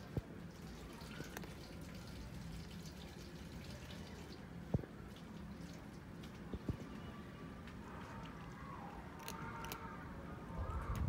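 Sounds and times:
cat crunching dry kibble: 9.1 - 10.0.

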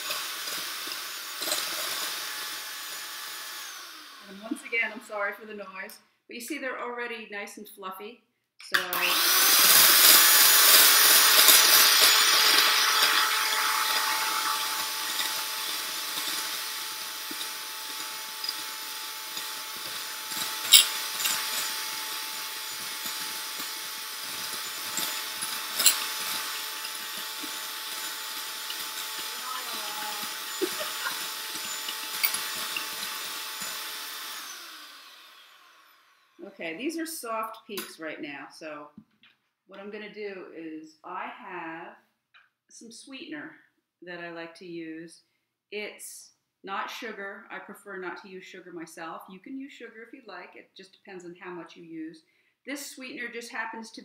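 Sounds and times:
electric hand mixer whining: 0.0 - 5.2, 8.8 - 36.4.

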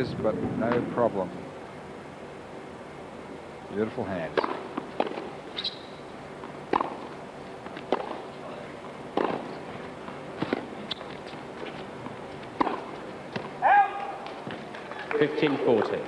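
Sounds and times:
racket hitting tennis ball: 4.3 - 5.8, 6.4 - 8.3, 9.1 - 15.0
shoe squeak on hard court: 5.6 - 6.0.

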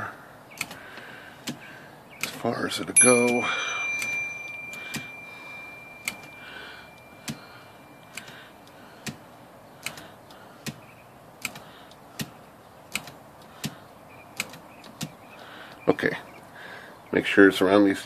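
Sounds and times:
high ringing tone: 3.0 - 8.6.

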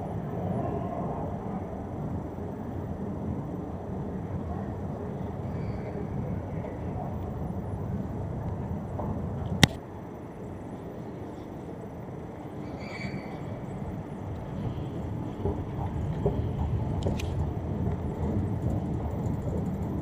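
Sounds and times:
train station concourse rumble: 0.0 - 20.0
sharp click: 9.6 - 9.8.

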